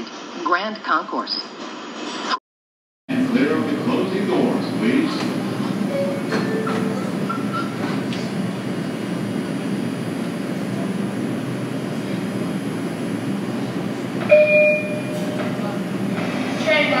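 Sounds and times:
subway train hum: 0:03.1 - 0:17.0
short electronic tone: 0:05.9 - 0:07.9, 0:14.3 - 0:15.4.

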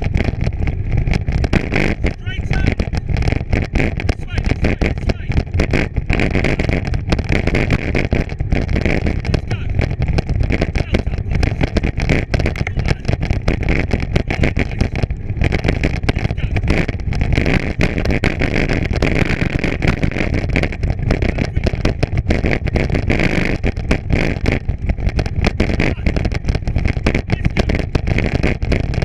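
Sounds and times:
bicycle rattling over rough ground: 0:00.0 - 0:29.0
low rumble: 0:00.0 - 0:29.0.

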